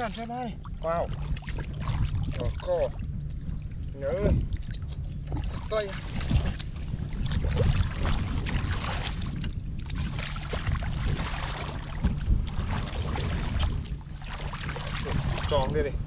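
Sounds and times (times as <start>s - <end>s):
muddy water splashing: 0.0s - 15.9s
wind rumble on microphone: 0.0s - 16.0s.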